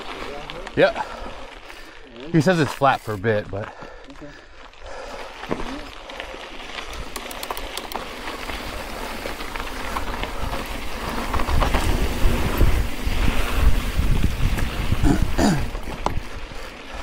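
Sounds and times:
tyres crunching on dirt: 0:00.0 - 0:17.0
grit clicks: 0:06.7 - 0:08.4
wind buffeting microphone: 0:09.8 - 0:17.0.

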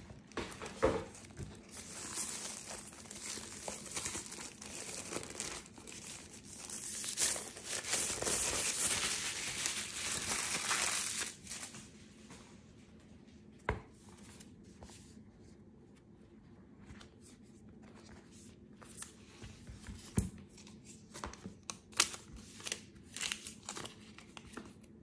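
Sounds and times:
wrapping crinkling and tearing: 0:00.0 - 0:11.9, 0:20.6 - 0:24.8.

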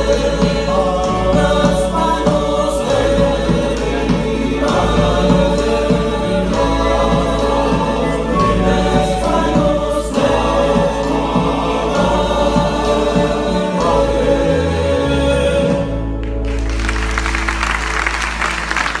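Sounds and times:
men singing in harmony: 0:00.0 - 0:16.2
acoustic guitars strummed: 0:00.0 - 0:18.5
applause: 0:16.2 - 0:19.0.

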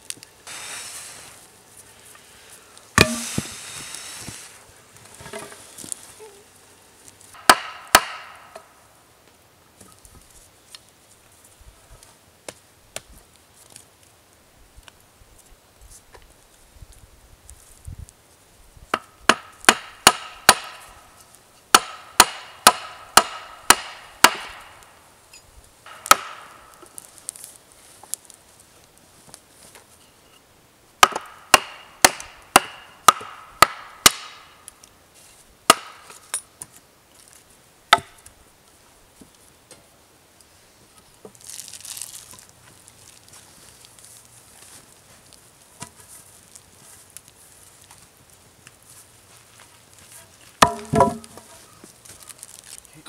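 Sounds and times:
hatchet chopping wooden pole: 0:03.0 - 0:03.6, 0:07.4 - 0:08.7, 0:18.9 - 0:20.9, 0:21.7 - 0:24.7, 0:25.9 - 0:26.6, 0:31.0 - 0:34.5, 0:35.7 - 0:36.4, 0:37.9 - 0:38.2, 0:50.6 - 0:51.5.

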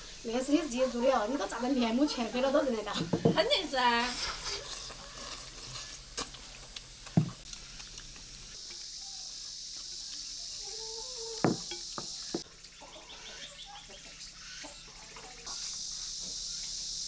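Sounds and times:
faint steady hiss: 0:00.0 - 0:17.0
chopsticks knocking bowls: 0:11.4 - 0:12.5.

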